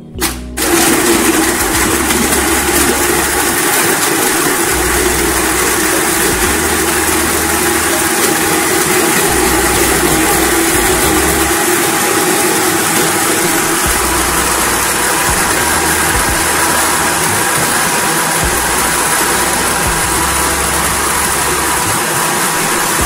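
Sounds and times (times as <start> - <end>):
electric blender running: 0.6 - 23.0.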